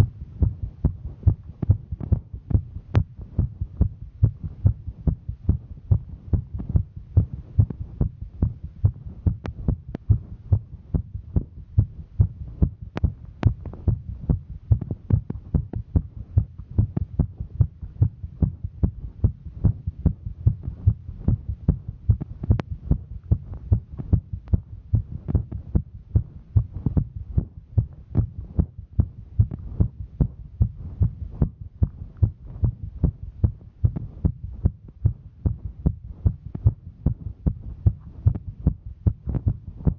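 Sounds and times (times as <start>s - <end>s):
heartbeat thudding: 0.0s - 39.9s
low hum: 0.0s - 39.9s.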